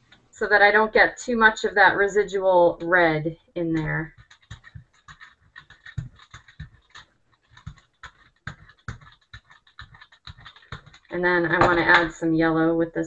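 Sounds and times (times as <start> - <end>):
brayer rolling over paint clicking: 3.7 - 12.1.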